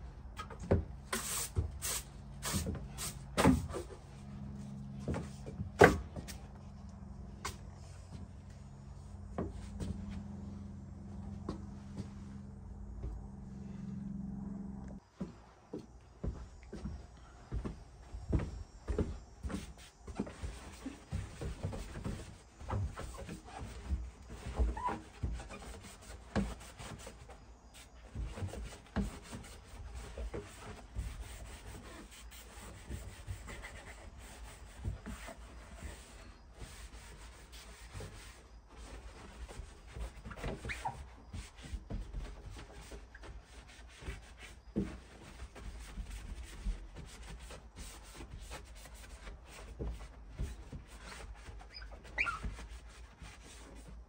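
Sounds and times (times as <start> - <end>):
rubbing and scraping: 19.0 - 54.0.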